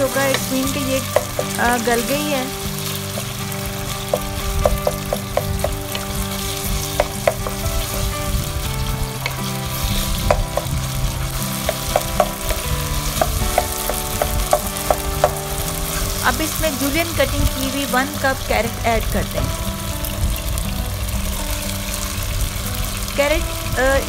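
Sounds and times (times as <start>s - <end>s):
chicken sizzling in oil: 0.0s - 24.0s
utensil clicking against pan: 0.1s - 8.1s, 9.2s - 16.3s.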